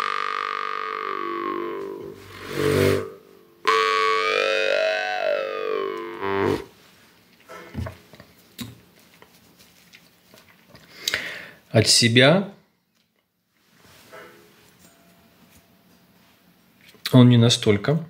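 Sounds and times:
jaw harp twanging drone: 0.0 - 6.7.

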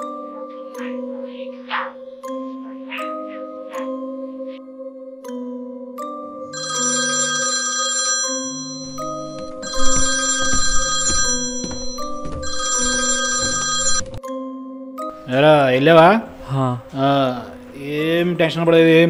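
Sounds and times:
phone ringtone melody: 6.5 - 14.2.

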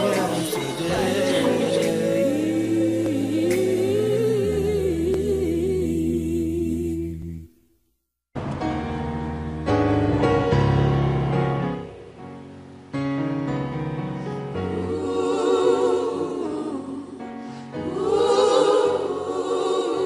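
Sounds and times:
choir holding long chords: 0.0 - 7.4, 13.5 - 20.0.

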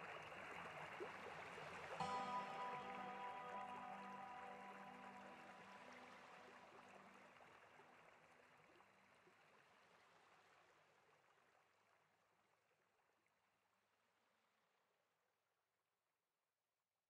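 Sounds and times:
background music: 2.0 - 7.4.

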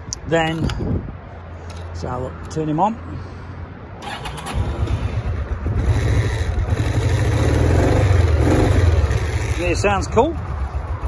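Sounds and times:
motorcycle engine starting and idling: 4.0 - 11.0.

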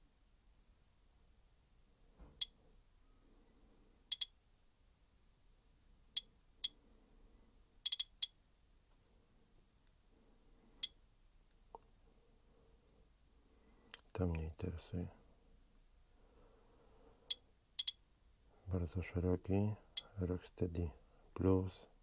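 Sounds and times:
sharp short clicks: 4.1 - 4.3, 7.8 - 8.4, 17.3 - 18.0.

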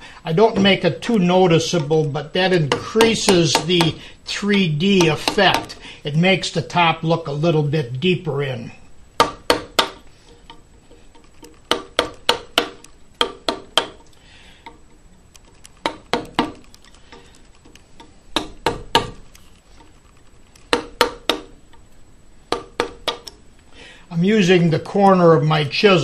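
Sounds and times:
mallet tapping chisel into wood: 2.6 - 4.0, 5.0 - 5.8, 9.2 - 10.6, 11.4 - 14.1, 15.8 - 16.6, 18.0 - 19.2, 20.7 - 21.6, 22.5 - 23.4.

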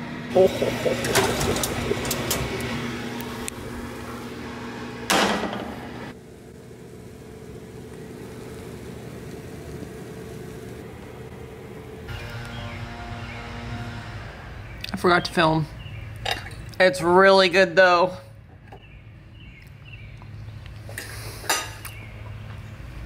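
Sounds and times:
steady low hum: 0.0 - 16.8.

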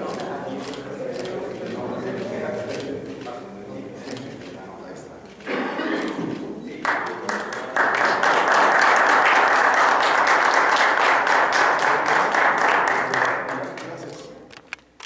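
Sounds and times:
crowd applauding: 6.8 - 14.1.

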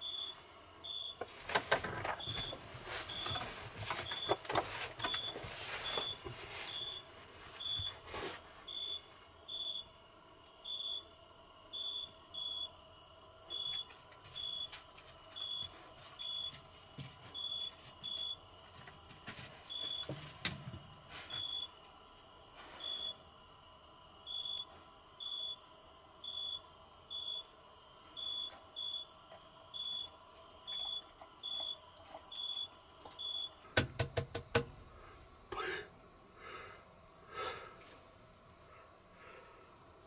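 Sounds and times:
person rustling on creaking bench: 1.3 - 8.6.

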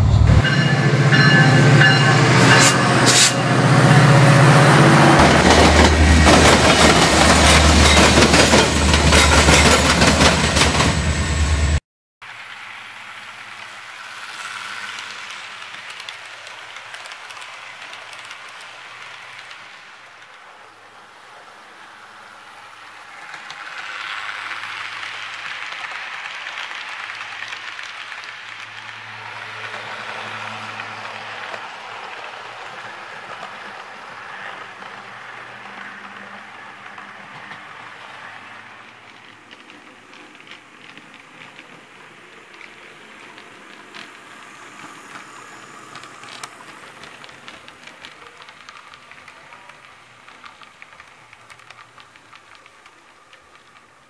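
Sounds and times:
model train wheels rattling: 12.5 - 19.8, 30.9 - 54.0.

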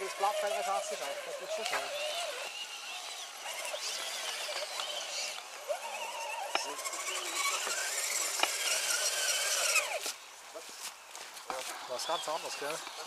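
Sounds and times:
electric motor whining: 0.0 - 10.3.

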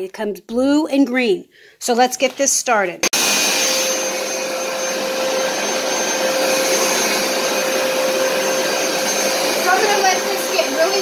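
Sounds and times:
carpet cleaner motor droning: 3.1 - 11.0.

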